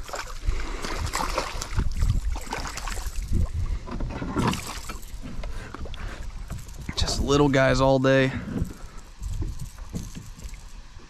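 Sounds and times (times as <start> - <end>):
fish splashing at water surface: 0.0 - 3.5, 4.4 - 5.2
wind rumble on microphone: 0.0 - 11.0.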